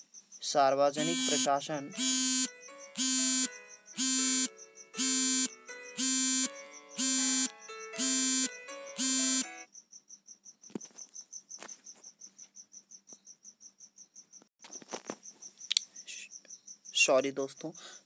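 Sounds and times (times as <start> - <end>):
crickets chirping: 0.0 - 18.0
phone alarm musical tones: 1.0 - 9.7.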